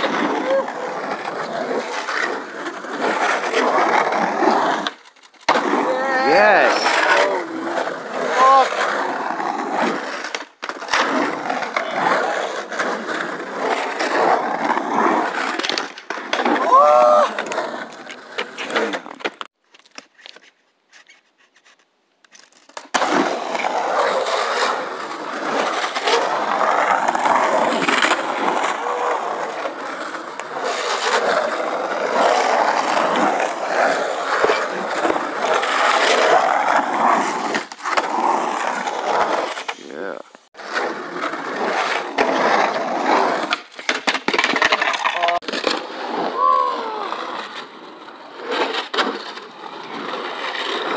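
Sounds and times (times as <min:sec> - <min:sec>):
skateboard wheels rolling on concrete: 0:00.0 - 0:50.9
skateboard clacks: 0:09.8 - 0:20.0, 0:40.6 - 0:50.9.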